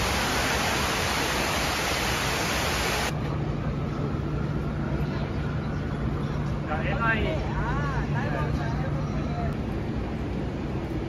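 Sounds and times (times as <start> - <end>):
water cascading down walls: 0.0 - 3.1
street sound: 0.0 - 11.0.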